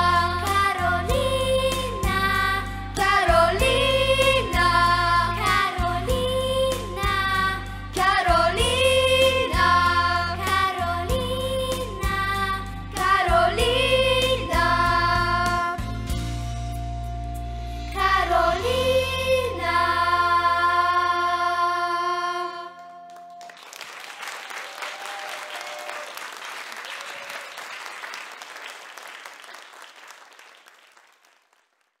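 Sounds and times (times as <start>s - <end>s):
children's choir singing with music: 0.0s - 16.6s, 17.6s - 23.6s
audience applause: 23.4s - 32.0s.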